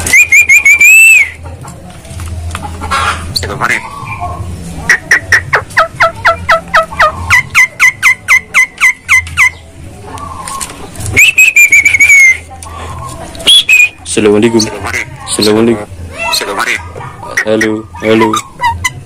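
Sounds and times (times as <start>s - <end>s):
bird whistling calls: 0.0s - 1.4s, 8.9s - 14.1s.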